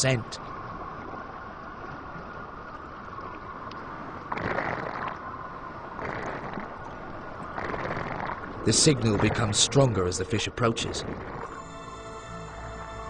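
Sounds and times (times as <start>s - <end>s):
surges of rushing water: 0.0s - 11.4s
underwater rushing hiss: 4.3s - 5.2s.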